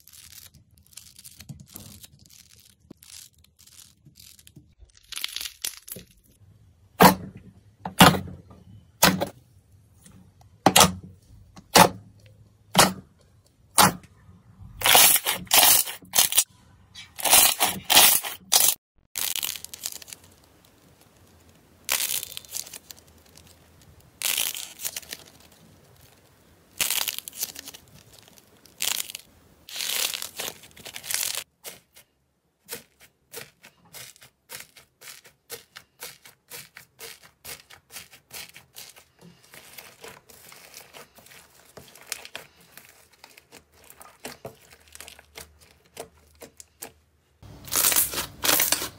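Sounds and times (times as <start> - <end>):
squishy balls crackling squishes: 0.0 - 7.0, 19.2 - 48.9
foam crunching when squeezed: 14.6 - 16.5, 17.2 - 32.0, 32.6 - 48.9.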